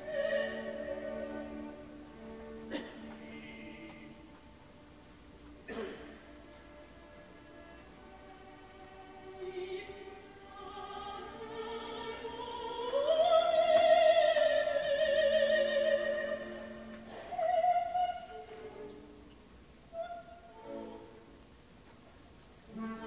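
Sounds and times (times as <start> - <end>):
operatic soprano singing: 0.0 - 4.6, 7.8 - 19.2, 19.9 - 21.4, 22.6 - 23.0.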